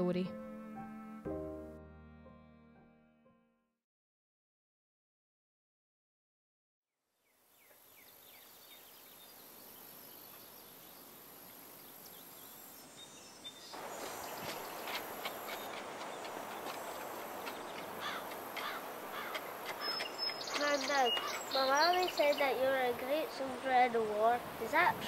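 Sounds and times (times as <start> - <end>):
small birds chirping: 7.4 - 25.0.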